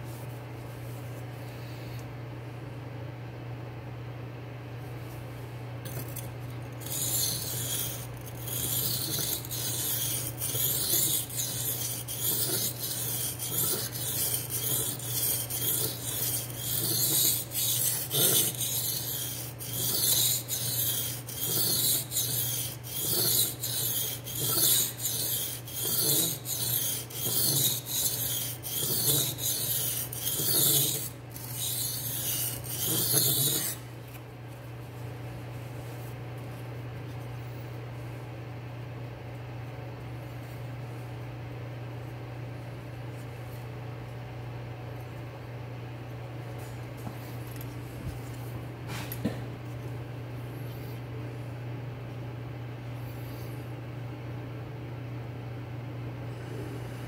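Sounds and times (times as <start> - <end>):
knife rasping on sharpening stone: 5.9 - 33.8.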